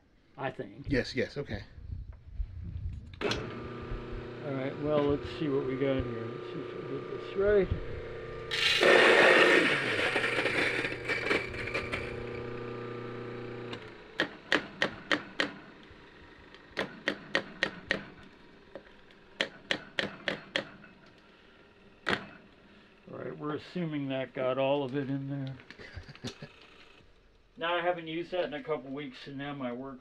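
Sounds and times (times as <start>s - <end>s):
coffee grinder motor running: 3.2s - 23.2s.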